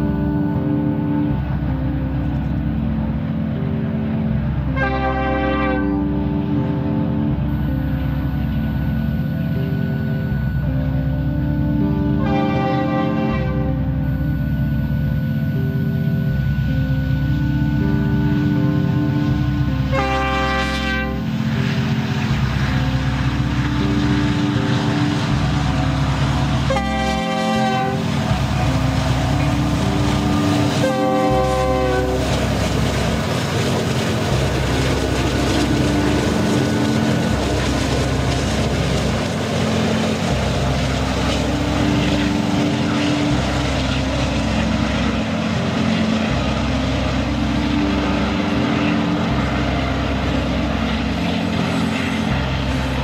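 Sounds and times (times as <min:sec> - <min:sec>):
diesel locomotives rumbling: 0:00.0 - 0:53.0
train horn blasts: 0:04.7 - 0:06.6, 0:11.4 - 0:14.4, 0:16.6 - 0:53.0
train wheels rumbling on rails: 0:18.3 - 0:53.0.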